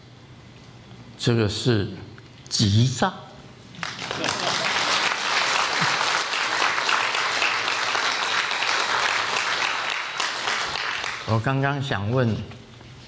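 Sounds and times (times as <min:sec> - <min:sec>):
audience applauding: 0:03.8 - 0:11.5.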